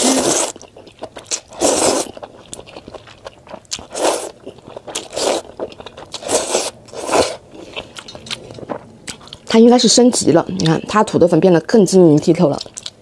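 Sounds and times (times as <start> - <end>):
noodles slurping: 0.0 - 9.4
wet chewing clicks: 0.1 - 9.6, 12.1 - 13.0.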